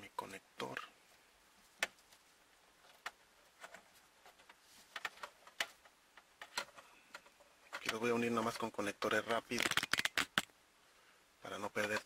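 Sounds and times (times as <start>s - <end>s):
wires and plastic connectors clicking: 2.8s - 10.5s, 11.7s - 12.0s.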